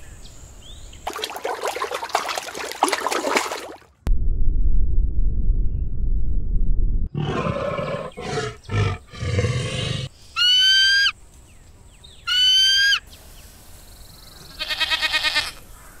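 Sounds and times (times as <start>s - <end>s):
rough roar-like growl: 7.1s - 10.1s
high ringing eagle calls: 10.4s - 11.2s
sheep bleating: 14.5s - 15.6s.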